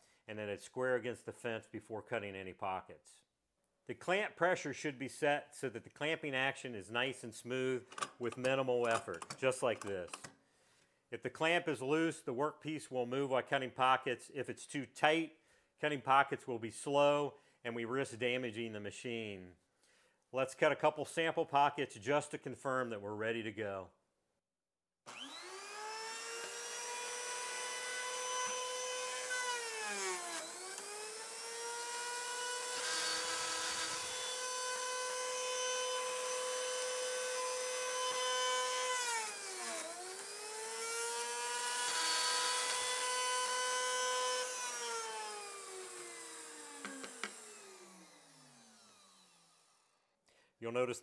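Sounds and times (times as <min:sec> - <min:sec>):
cutting machine motor whining: 0:25.1 - 0:49.9.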